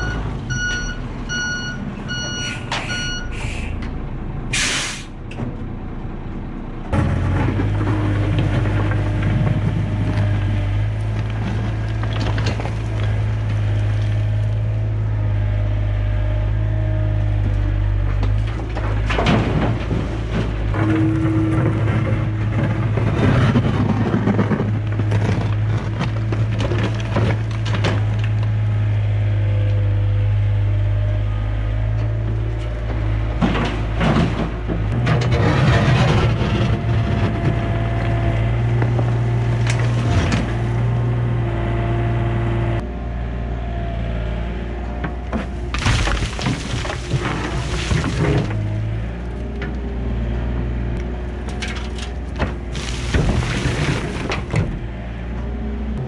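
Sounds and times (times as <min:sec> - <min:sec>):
excavator diesel engine: 0:00.0 - 0:56.0
air brake hiss: 0:02.5 - 0:03.8, 0:04.5 - 0:05.2
bucket scraping and clunking: 0:07.0 - 0:14.2, 0:18.1 - 0:28.4, 0:33.0 - 0:40.9, 0:45.1 - 0:49.8, 0:51.3 - 0:55.0.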